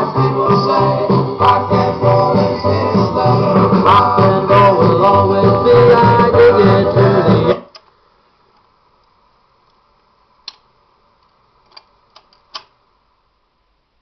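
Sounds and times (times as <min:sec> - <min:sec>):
song with singing and guitar: 0:00.0 - 0:07.8.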